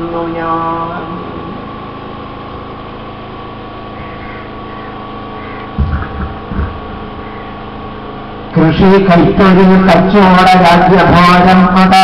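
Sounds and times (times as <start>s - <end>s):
steady mechanical hum: 0.0s - 12.0s
short low thumps: 5.6s - 7.3s.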